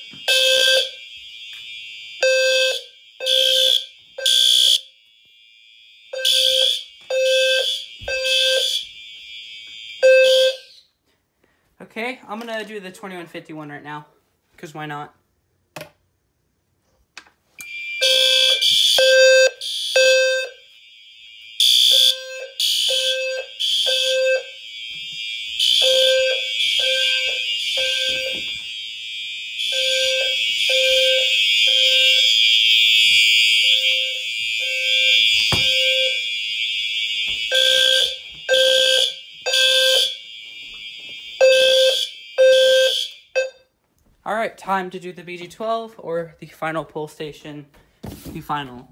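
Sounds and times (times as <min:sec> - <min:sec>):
fire alarm horns: 0:00.0 - 0:11.0, 0:17.6 - 0:43.8
low alarm sounder pulses: 0:00.0 - 0:11.0, 0:17.6 - 0:43.8.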